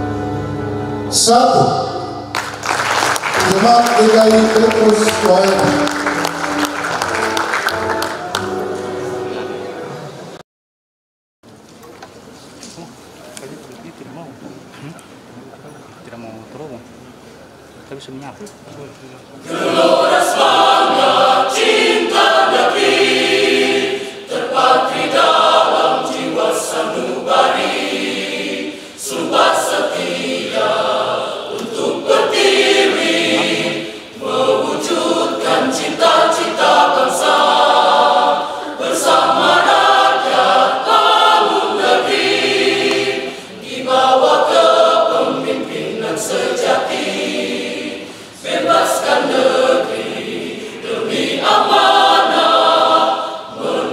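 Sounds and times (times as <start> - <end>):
mixed choir singing: 19.4 - 53.9.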